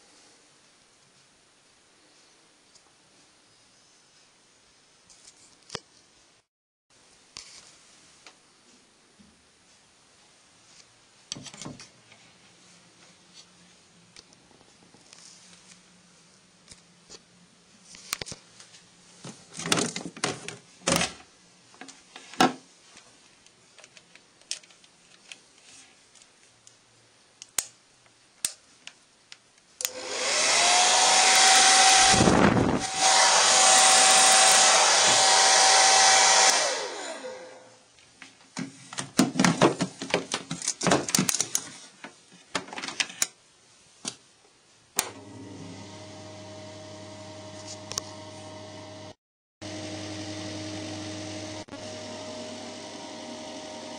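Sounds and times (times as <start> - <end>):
clicks and knocks of handling: 21.8 - 26.8, 38.2 - 43.4
hair dryer blowing: 29.9 - 37.8, 45.0 - 53.9.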